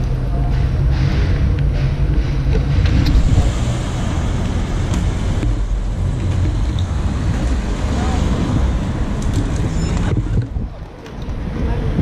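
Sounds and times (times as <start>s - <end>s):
road and traffic noise: 0.0s - 12.0s
wind buffeting microphone: 2.6s - 12.0s.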